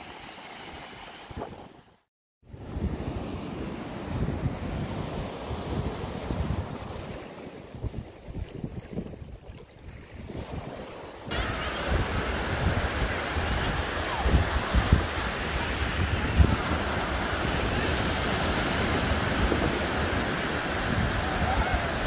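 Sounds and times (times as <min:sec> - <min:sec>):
wind buffeting microphone: 0:02.5 - 0:22.0
surf breaking on beach: 0:09.8 - 0:22.0.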